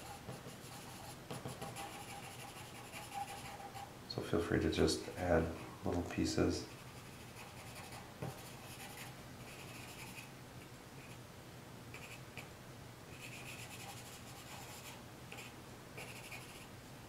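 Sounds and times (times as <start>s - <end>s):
pencil scratching on paper: 0.0s - 3.9s, 6.7s - 10.3s, 13.2s - 16.7s.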